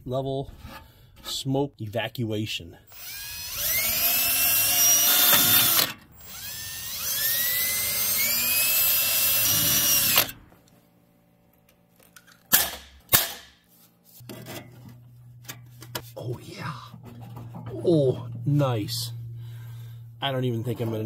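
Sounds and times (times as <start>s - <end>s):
cordless drill boring sheet metal: 2.9s - 10.4s.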